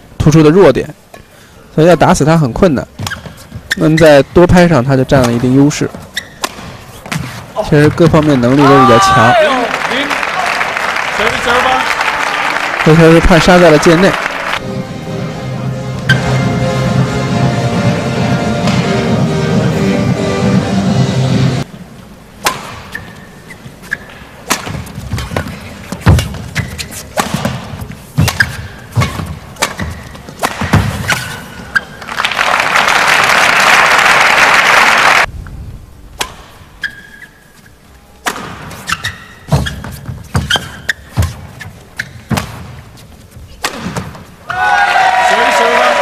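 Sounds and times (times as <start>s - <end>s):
shoe squeaks on court: 3.0s - 4.3s, 5.9s - 7.4s, 22.8s - 24.2s, 24.8s - 32.0s, 36.8s - 37.8s, 38.7s - 43.1s
racket striking shuttlecock: 6.3s - 7.2s, 22.4s - 23.2s, 24.1s - 31.4s, 36.2s - 36.6s, 38.2s - 39.7s, 43.6s - 44.2s
crowd applause: 8.5s - 14.6s, 32.0s - 35.3s, 44.8s - 46.0s.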